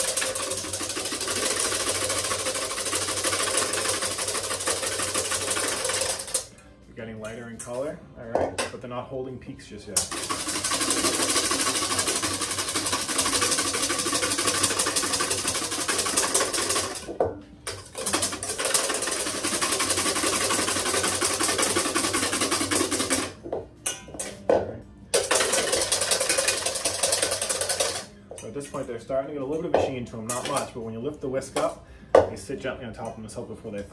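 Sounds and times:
whisk beating in metal bowl: 0.0 - 6.5, 10.0 - 24.0, 25.2 - 28.8.

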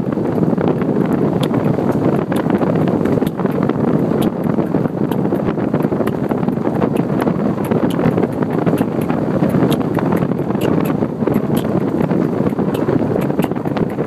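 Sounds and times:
truck road noise: 0.0 - 14.0
wind roaring over microphone: 0.0 - 14.0.

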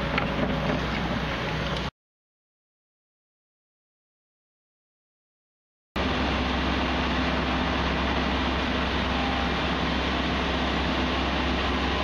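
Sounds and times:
excavator diesel engine running: 0.0 - 1.9, 6.0 - 12.0.

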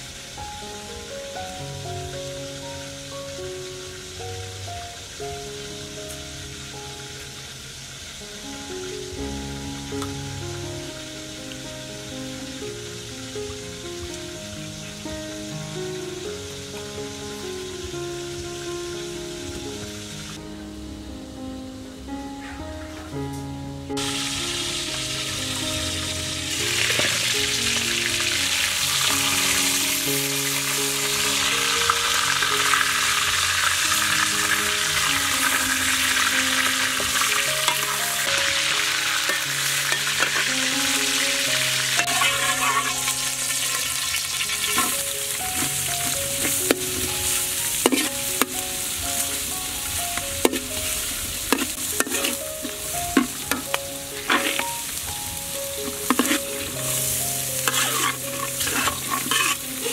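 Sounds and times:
hot oil sizzling: 0.0 - 59.9
soft background music: 0.0 - 59.9
metal spatula scraping wok: 26.8 - 27.3, 28.6 - 40.5, 41.8 - 48.6, 50.4 - 55.0, 55.8 - 59.9.

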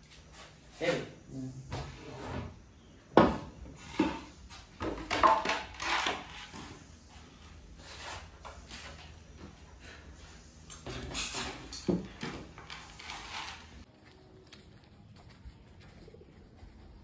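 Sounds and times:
shuffling: 12.7 - 17.0.

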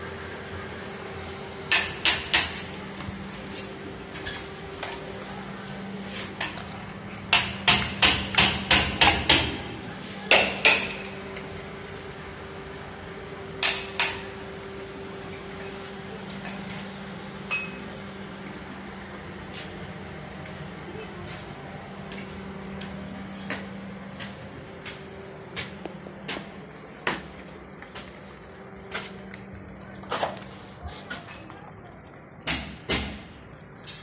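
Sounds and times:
steady low hum: 0.0 - 34.0
hammer striking metal: 1.7 - 2.7, 7.3 - 9.7, 10.3 - 11.2, 13.6 - 14.5.

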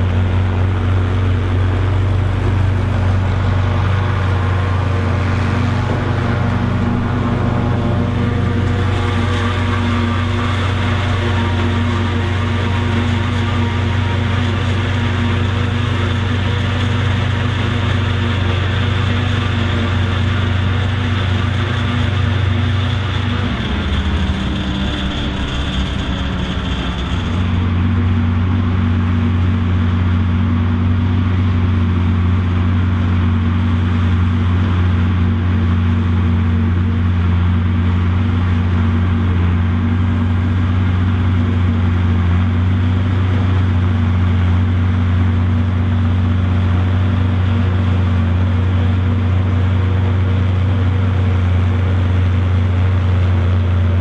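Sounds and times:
forage harvester chopping: 0.0 - 29.3
tractor engine under load: 0.0 - 54.0.

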